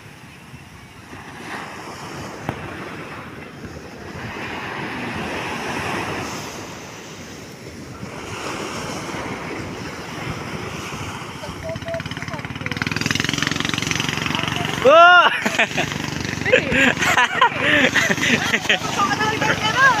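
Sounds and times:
surf breaking on beach: 0.0s - 20.0s.

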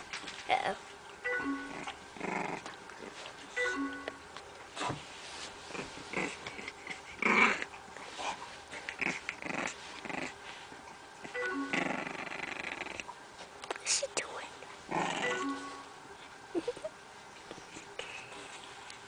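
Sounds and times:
puppy growling and grunting: 1.6s - 3.3s, 5.6s - 10.5s, 11.2s - 13.2s, 14.8s - 15.5s.

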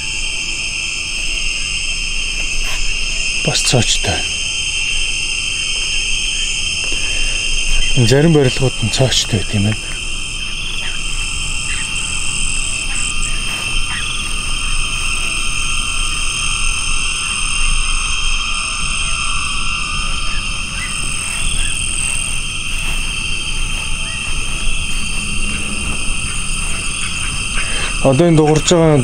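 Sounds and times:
high-pitched animal drones: 0.0s - 29.0s
animal chirps and calls: 9.5s - 15.4s, 17.1s - 29.0s
low rumble: 20.1s - 28.4s.

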